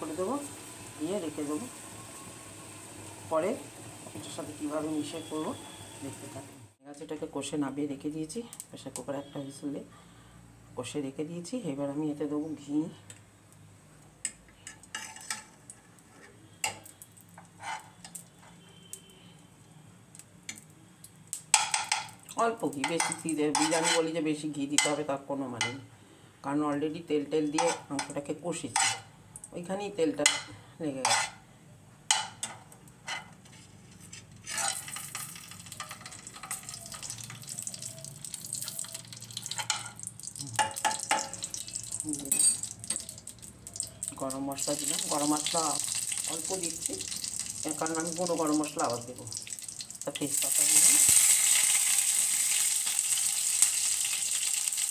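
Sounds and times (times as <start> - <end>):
ghee sizzling in a pan: 0.0 - 6.8, 20.2 - 25.8, 34.0 - 54.9
metal spoon scraping in pan: 14.6 - 18.9, 22.8 - 24.2, 27.4 - 29.1, 30.3 - 31.4, 32.1 - 37.4, 38.5 - 40.0
spoon knocking against pan: 40.6 - 41.4.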